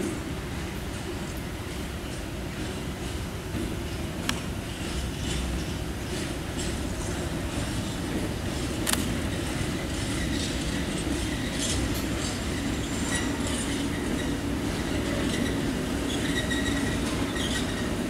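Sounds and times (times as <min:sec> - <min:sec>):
diesel locomotive engine rumble: 0:00.0 - 0:18.0
wheels clicking on track: 0:00.7 - 0:18.0
wheel squeal: 0:09.5 - 0:18.0.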